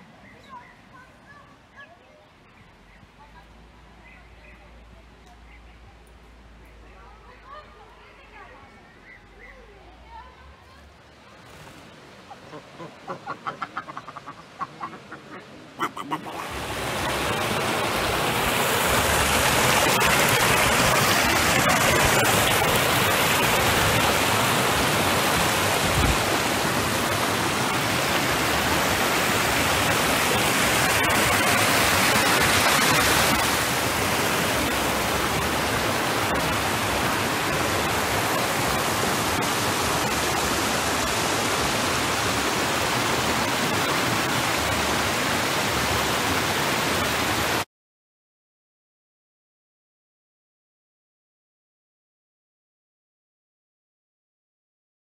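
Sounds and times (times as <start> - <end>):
stream rushing over stones: 9.8 - 47.7.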